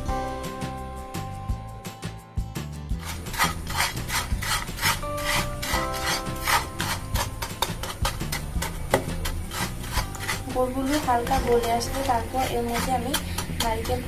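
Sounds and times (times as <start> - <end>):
spatula scraping a frying pan: 2.9 - 14.0.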